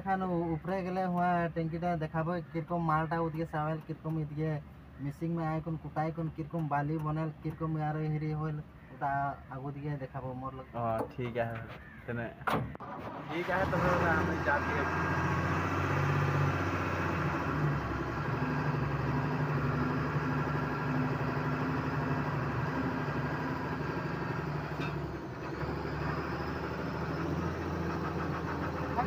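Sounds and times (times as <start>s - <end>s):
diesel truck engine running: 12.7s - 29.0s.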